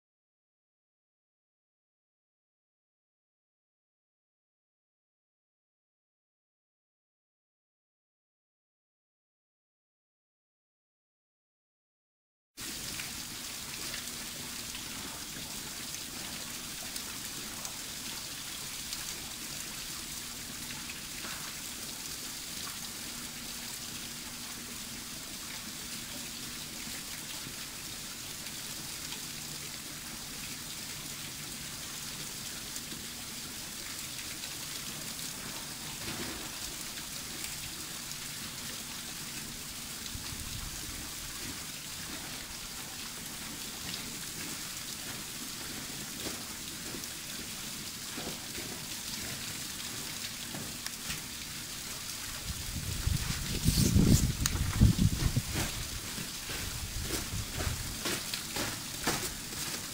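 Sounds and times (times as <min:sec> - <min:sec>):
waterfall splashing: 0:41.1 - 0:59.9.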